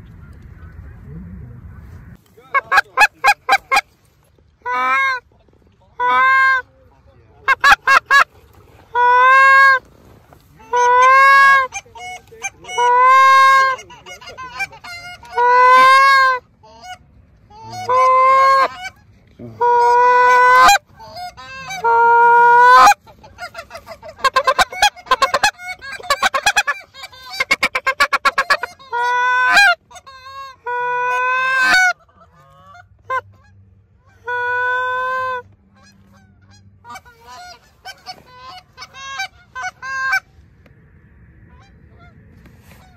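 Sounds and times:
goose call honks: 0:02.5 - 0:03.9, 0:04.6 - 0:05.2, 0:06.0 - 0:06.7, 0:07.4 - 0:08.3, 0:08.9 - 0:09.8, 0:10.6 - 0:40.3.

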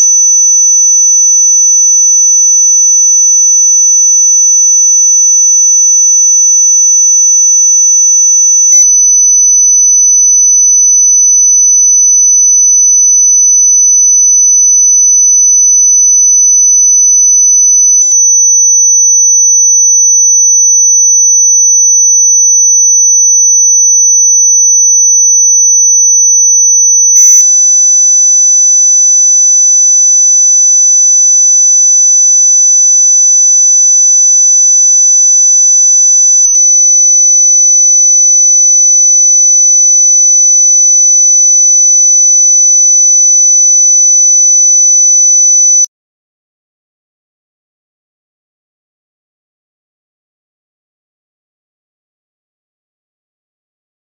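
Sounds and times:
high-pitched electronic sine tone: 0:00.0 - 0:09.2, 0:16.9 - 0:45.9.

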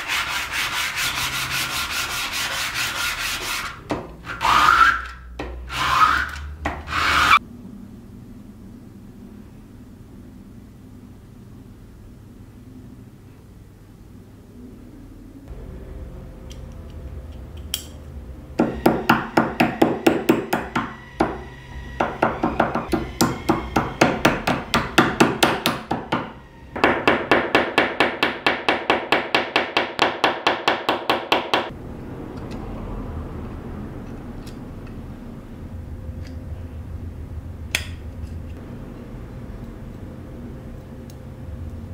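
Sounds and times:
hammer tapping metal: 0:18.6 - 0:31.7.

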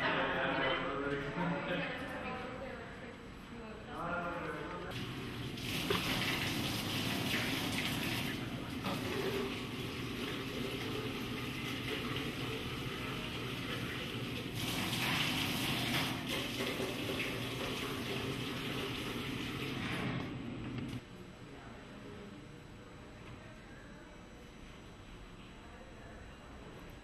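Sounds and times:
tap water running into sink: 0:04.9 - 0:19.9.

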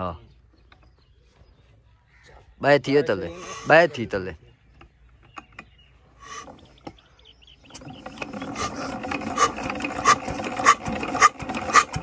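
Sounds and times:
crank and flywheel rattling: 0:07.7 - 0:12.0.

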